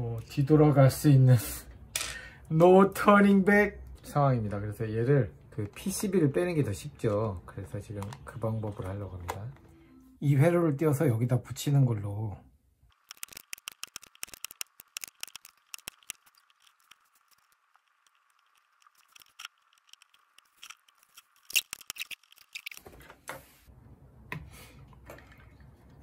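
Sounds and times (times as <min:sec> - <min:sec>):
tool clicks and scrapes: 0:12.9 - 0:22.9.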